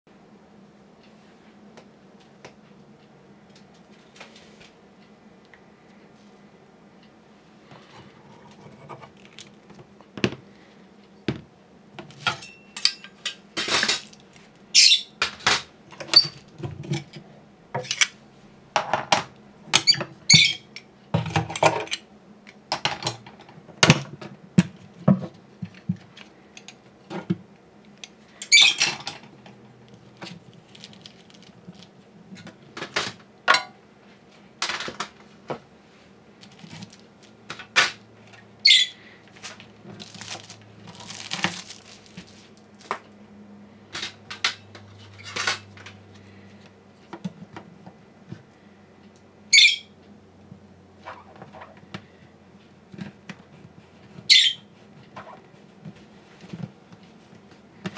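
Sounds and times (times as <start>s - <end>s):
squeaks: 19.8s - 20.7s, 28.4s - 28.9s, 38.6s - 39.0s, 54.3s - 54.6s.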